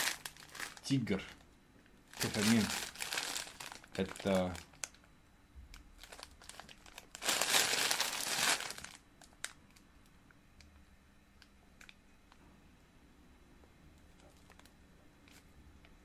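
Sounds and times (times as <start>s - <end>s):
plastic packaging crinkling: 0.0s - 1.5s, 2.1s - 5.0s, 5.7s - 9.6s, 14.1s - 15.5s.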